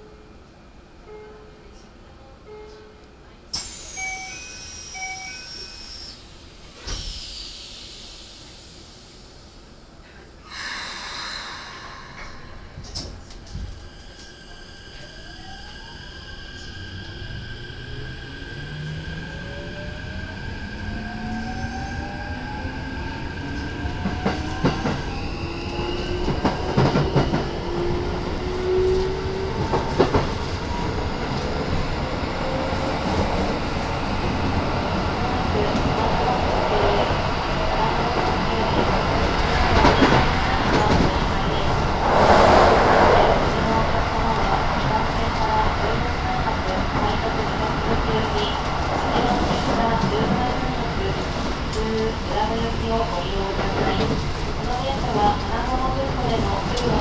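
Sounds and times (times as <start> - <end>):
air hiss: 6.8 - 9.5.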